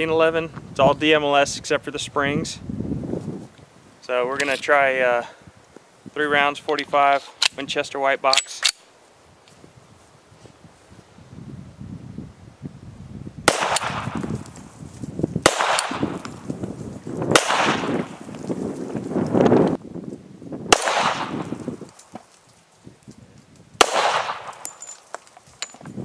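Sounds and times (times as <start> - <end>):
pistol shots with ringing echo: 13.5 - 14.2, 15.4 - 16.2, 17.3 - 18.1, 20.7 - 21.5, 23.8 - 25.1.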